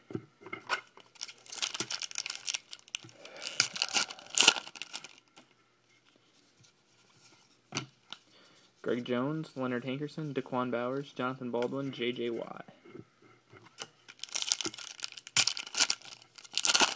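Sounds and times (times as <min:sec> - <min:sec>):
foil wrapper crinkling and tearing: 0:01.0 - 0:05.4, 0:14.1 - 0:16.9.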